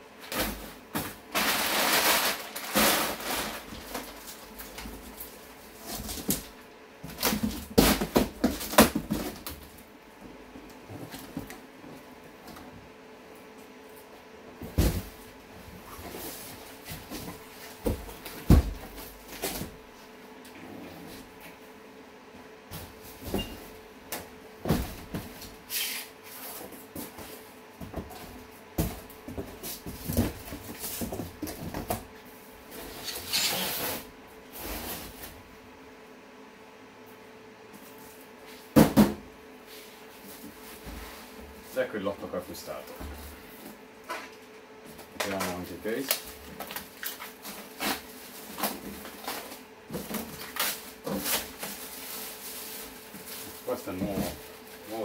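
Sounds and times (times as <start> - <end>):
plastic wrapping crinkling: 1.3 - 5.3
packaging rustling: 1.3 - 6.3.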